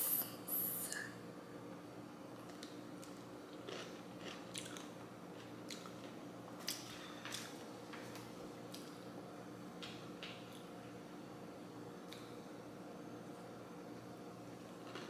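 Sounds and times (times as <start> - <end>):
chewing crunches: 2.5 - 7.5.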